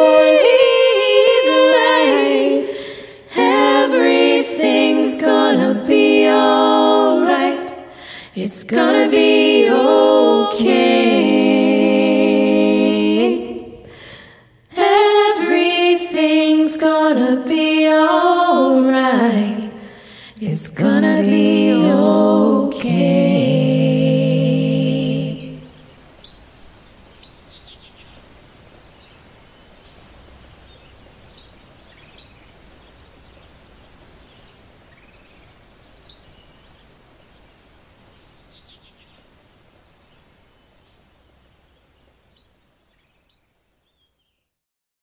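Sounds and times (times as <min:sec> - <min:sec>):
women singing a cappella chord: 0:00.0 - 0:25.9
woodland ambience: 0:00.0 - 0:44.4.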